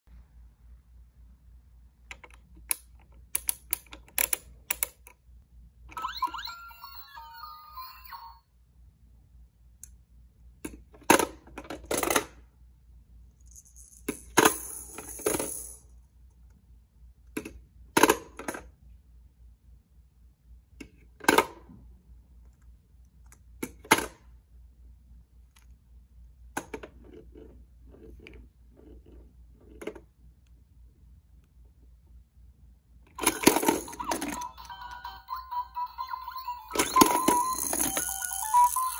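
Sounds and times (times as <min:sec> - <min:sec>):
plastic toy balls clacking: 0:33.2 - 0:35.0, 0:36.7 - 0:38.9.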